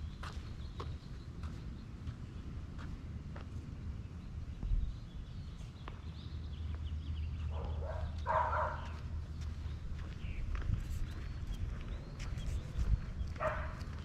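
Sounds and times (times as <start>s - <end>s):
faint footsteps: 0.0s - 4.0s, 5.5s - 14.0s
dog barking: 7.5s - 9.0s, 13.4s - 13.8s.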